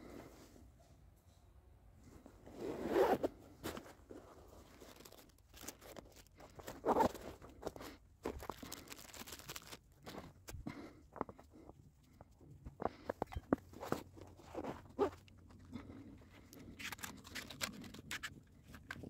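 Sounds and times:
fabric rustling and crunching: 2.4s - 10.3s.

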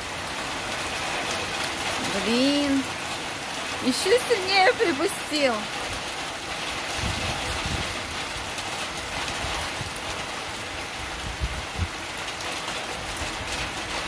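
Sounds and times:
heavy rain pouring: 0.0s - 14.0s.

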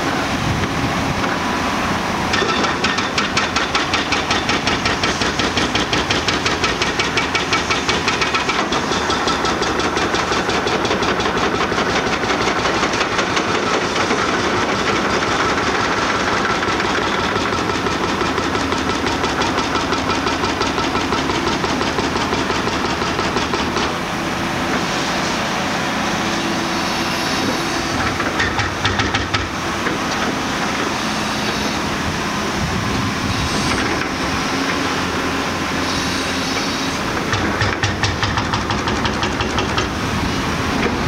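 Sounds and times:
excavator diesel engine under load: 0.0s - 41.0s
hydraulic hiss: 35.7s - 37.1s.

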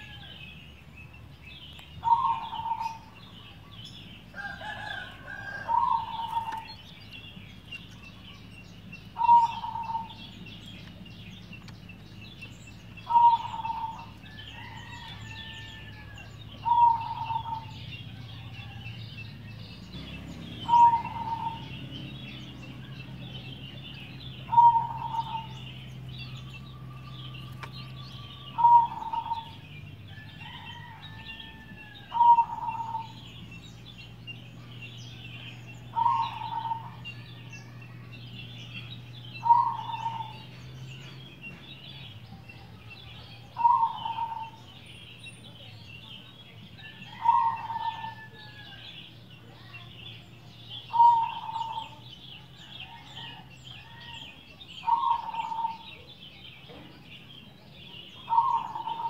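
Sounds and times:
high chirping: 0.0s - 31.1s
dove cooing: 2.0s - 3.4s, 4.3s - 6.8s, 9.1s - 10.4s, 13.0s - 18.8s, 20.0s - 33.3s, 34.6s - 38.0s, 39.4s - 40.5s, 43.5s - 44.6s, 46.9s - 48.7s, 50.9s - 52.0s, 54.8s - 56.1s, 58.2s - 59.0s.

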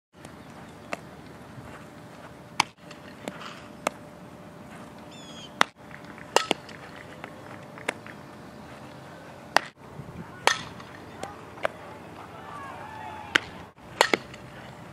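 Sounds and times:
softball being hit and caught: 2.6s - 4.0s, 5.6s - 6.8s, 9.5s - 9.8s, 10.4s - 11.8s, 13.3s - 14.5s.

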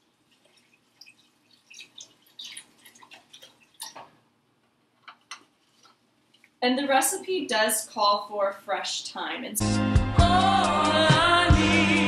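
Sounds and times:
broth glugging and splashing: 0.0s - 4.3s.

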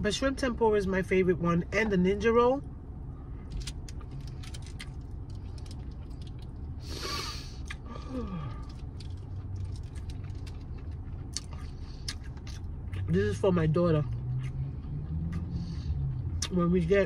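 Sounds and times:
low steady hum: 0.0s - 17.0s
breathy noise: 6.8s - 8.8s
chewing with wet mouth clicks: 7.6s - 7.9s, 8.6s - 13.2s, 14.1s - 15.5s, 16.1s - 16.7s.

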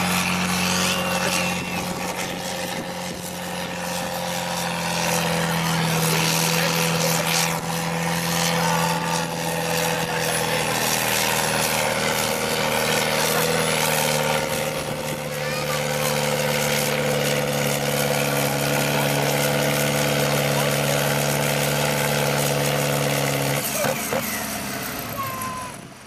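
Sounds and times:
tractor diesel engine under load: 0.0s - 26.0s.

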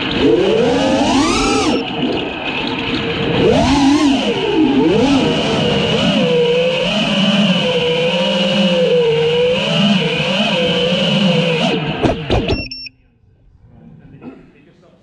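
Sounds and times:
drone propellers whining: 0.0s - 12.9s
short high beep: 12.5s - 13.1s.

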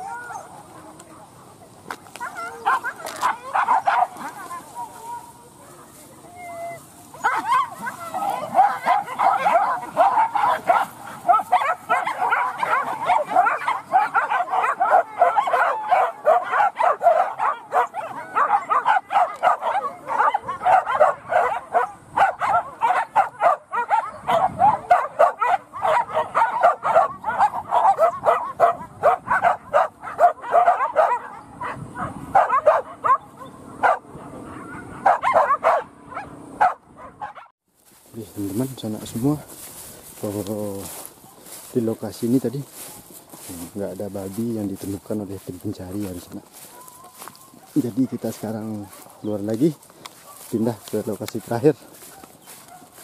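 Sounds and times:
dogs barking and yelping: 0.0s - 37.5s, 38.6s - 53.0s.

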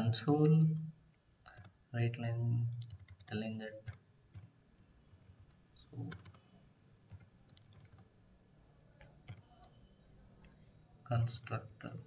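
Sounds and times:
keyboard keystrokes: 2.8s - 4.5s, 7.1s - 8.1s.

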